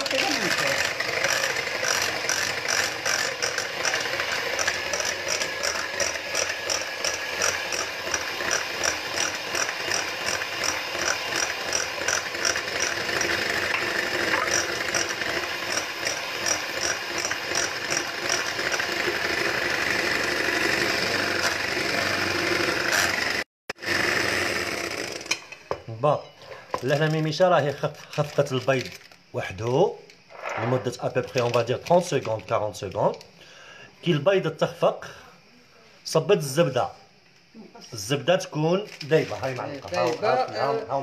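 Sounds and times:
electric hand mixer whisking: 0:00.0 - 0:25.4.

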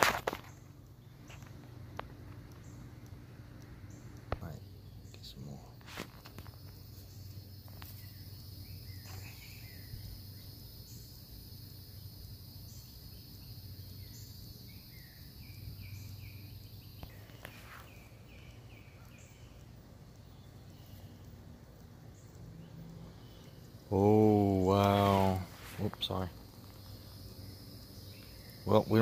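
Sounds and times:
high-pitched insect drone: 0:03.9 - 0:17.9
short bird chirps: 0:07.9 - 0:10.2.

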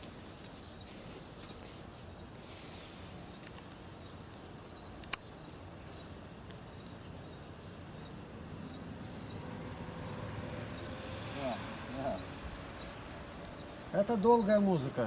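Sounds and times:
faint outdoor background noise: 0:00.0 - 0:15.0
sharp click: 0:03.4 - 0:03.8, 0:05.0 - 0:05.3.

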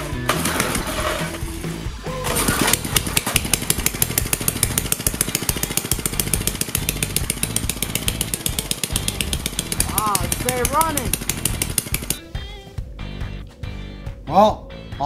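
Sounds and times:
single-cylinder engine running: 0:02.3 - 0:12.2.

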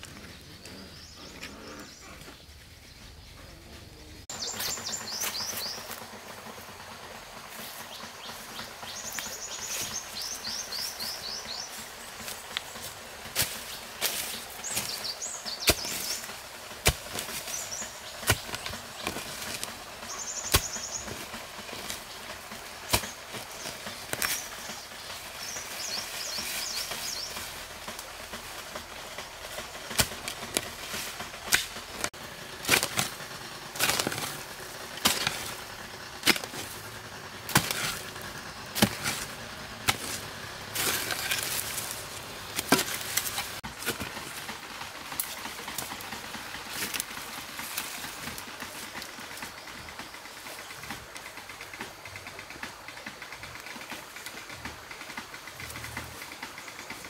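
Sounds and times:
bird chirp: 0:00.0 - 0:27.7
hoe chopping dry soil: 0:04.3 - 0:06.6, 0:07.5 - 0:57.0.

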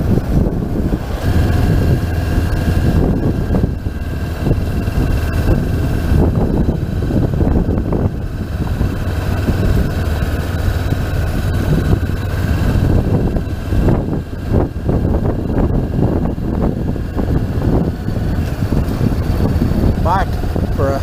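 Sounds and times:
motorcycle engine at low revs: 0:00.0 - 0:21.0.

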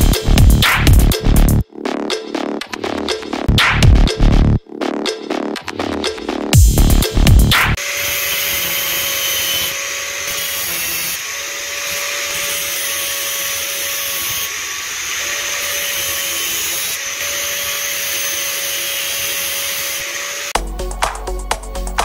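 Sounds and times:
angle grinder cutting metal bolts: 0:07.8 - 0:20.6.

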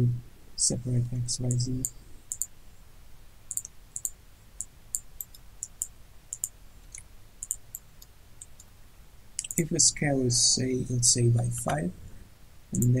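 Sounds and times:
faint low hum: 0:00.0 - 0:13.0
computer mouse clicking: 0:01.5 - 0:02.5, 0:03.5 - 0:08.7, 0:09.4 - 0:09.6, 0:12.7 - 0:13.0.

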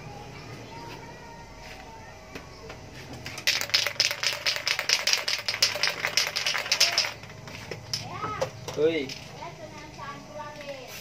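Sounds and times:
spray can rattling when shaken: 0:03.2 - 0:07.4.

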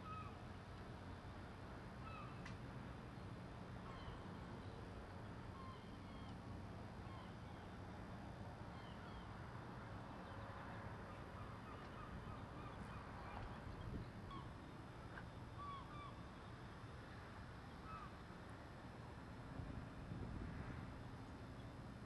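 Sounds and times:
low machinery hum: 0:00.0 - 0:22.0.

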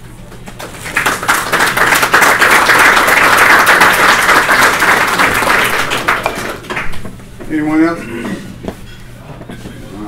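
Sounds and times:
audience applauding: 0:00.6 - 0:07.0.

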